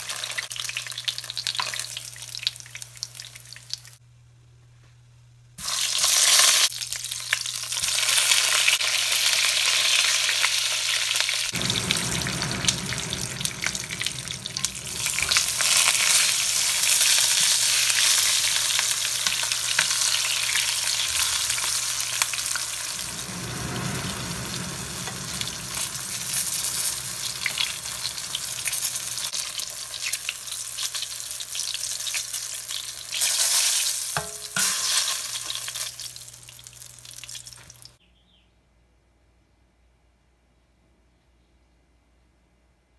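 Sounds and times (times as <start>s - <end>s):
eggplant sizzling in hot oil: 0.0s - 4.0s, 5.6s - 38.0s
deep rumble: 11.5s - 17.8s, 20.7s - 29.3s.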